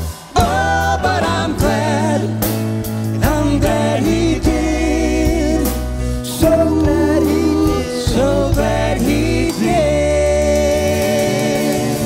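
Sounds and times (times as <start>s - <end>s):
bass and piano: 0.0s - 12.0s
voices singing with vibrato: 0.0s - 12.0s.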